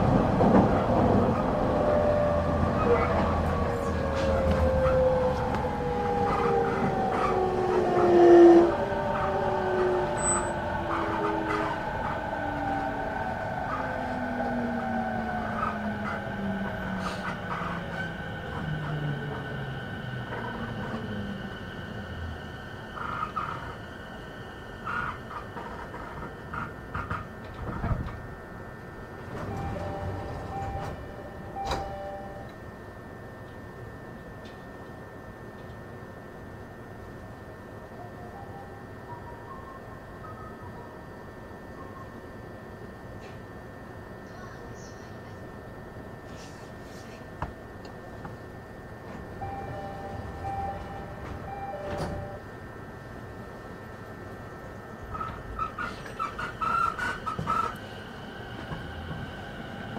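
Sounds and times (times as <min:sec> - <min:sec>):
train equipment humming: 0:00.0 - 0:59.9
two-tone train door chime: 0:08.2 - 0:12.1, 0:27.4 - 0:34.8, 0:38.0 - 0:43.6, 0:48.9 - 0:53.0
steady beeping tones: 0:29.5 - 0:33.2, 0:49.0 - 0:53.0.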